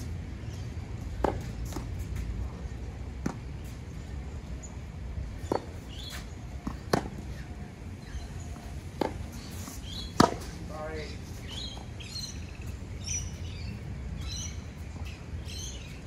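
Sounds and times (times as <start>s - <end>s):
tennis ball struck by racket: 1.2s - 2.2s, 5.4s - 7.2s, 8.6s - 10.6s.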